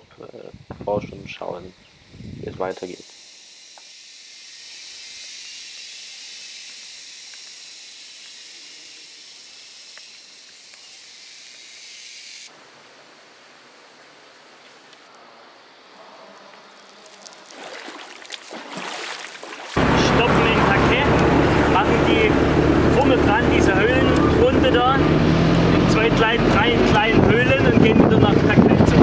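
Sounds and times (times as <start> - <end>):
insect chorus hissing: 0.0 - 19.8.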